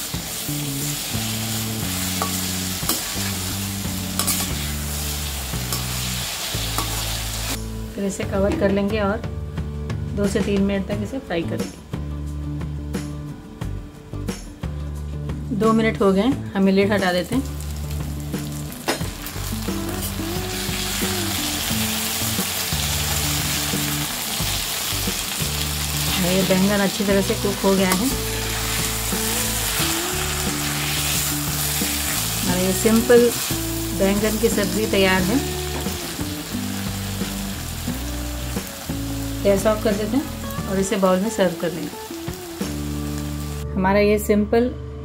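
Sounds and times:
vegetables sizzling in oil: 0:00.0 - 0:08.2, 0:17.0 - 0:43.6
soft background music: 0:00.0 - 0:45.0
metal spatula scraping pan: 0:04.2 - 0:04.8.

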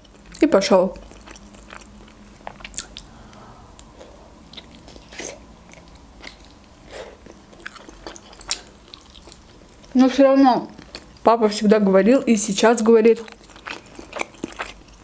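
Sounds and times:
person chewing food: 0:01.0 - 0:10.0, 0:10.8 - 0:11.2, 0:13.2 - 0:15.0.

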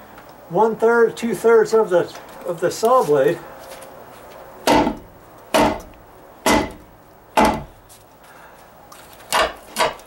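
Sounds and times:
hammer striking wood: 0:04.6 - 0:06.8, 0:07.4 - 0:07.7, 0:09.3 - 0:10.0.

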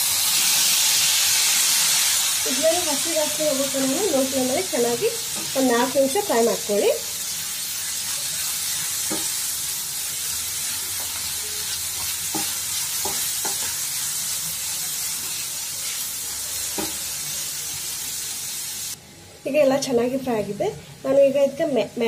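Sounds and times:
vegetables sizzling in frying pan: 0:00.0 - 0:22.0
spatula knocking on pan: 0:09.1 - 0:09.3, 0:12.0 - 0:13.8.

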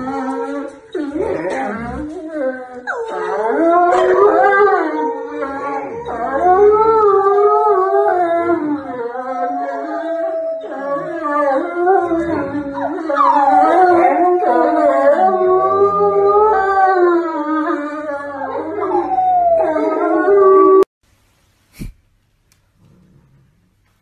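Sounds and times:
dog howling: 0:00.0 - 0:20.9.

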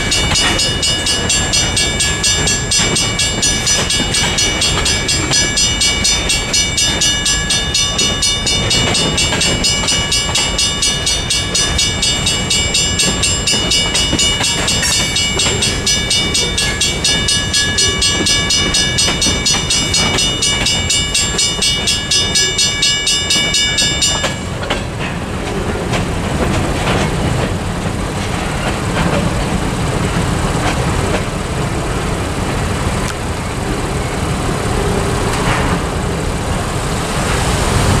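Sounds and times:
crossing bell ringing: 0:00.0 - 0:31.7
freight cars rumbling and clattering: 0:00.0 - 0:38.0.

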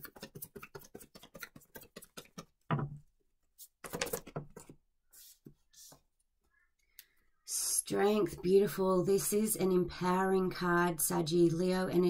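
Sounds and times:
cards being shuffled: 0:03.6 - 0:06.0.

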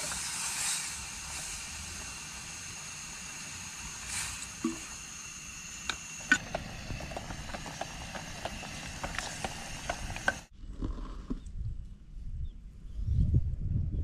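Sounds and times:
gas stove burner hiss: 0:00.0 - 0:10.5.

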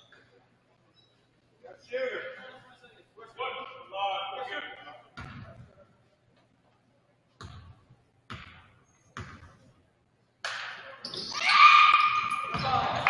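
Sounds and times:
basketball bouncing on wooden floor: 0:07.4 - 0:09.6.

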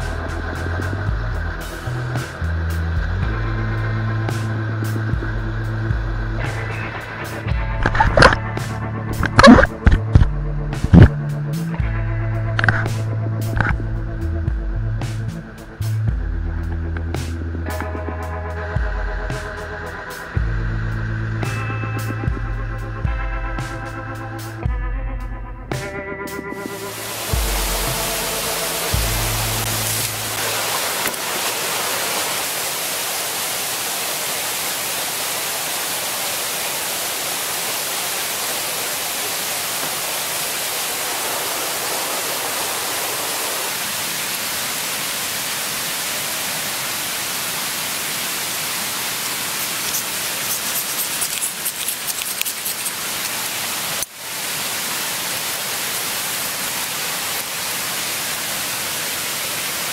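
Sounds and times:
running water rushing: 0:00.0 - 0:14.3, 0:26.5 - 0:59.9
music track: 0:00.0 - 0:30.4.

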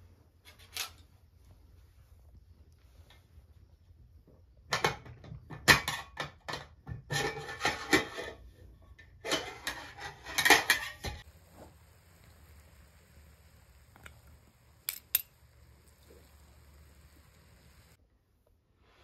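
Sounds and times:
metal pot and lid clinking: 0:04.8 - 0:08.4, 0:09.0 - 0:11.2, 0:14.8 - 0:15.7.

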